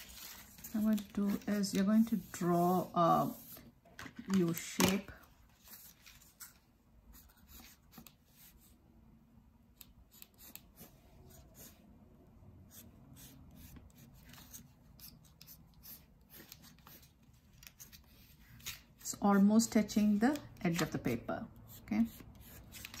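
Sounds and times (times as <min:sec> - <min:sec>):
pencil scratching on paper: 0:07.1 - 0:08.8, 0:09.8 - 0:11.8, 0:12.7 - 0:17.2, 0:21.6 - 0:23.0.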